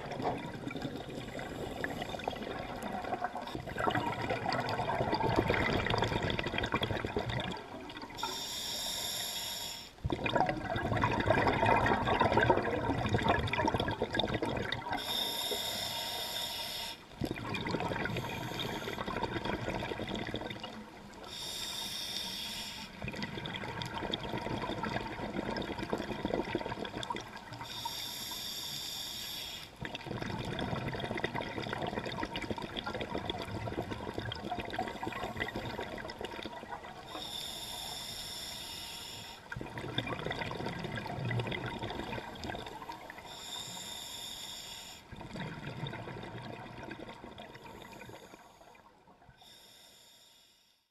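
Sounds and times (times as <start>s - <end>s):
bubbling exhalation: 0.0s - 8.2s, 10.0s - 15.1s, 17.2s - 20.9s, 29.8s - 37.1s, 39.5s - 43.2s
hissing regulator inhalation: 8.2s - 10.0s, 15.0s - 17.1s, 21.2s - 23.0s, 27.6s - 29.8s, 37.1s - 39.6s, 43.2s - 45.1s.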